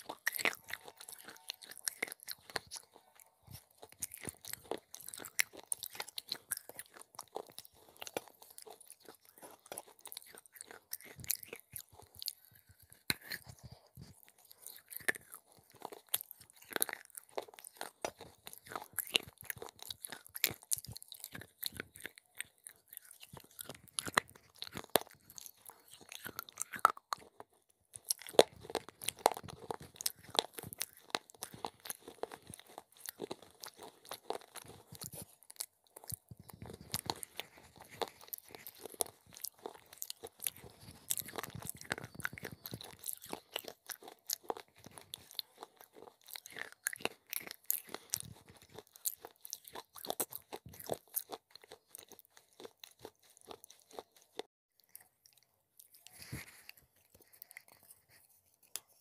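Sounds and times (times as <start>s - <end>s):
crunching and chewing clay pieces: 0.0s - 59.0s.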